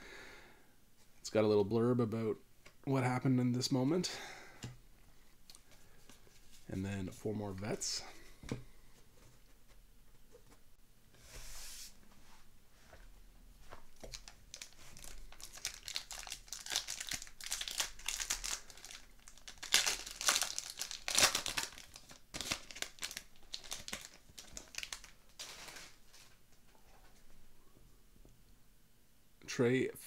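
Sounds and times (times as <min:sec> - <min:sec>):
wrapper crinkling: 0:14.0 - 0:26.0.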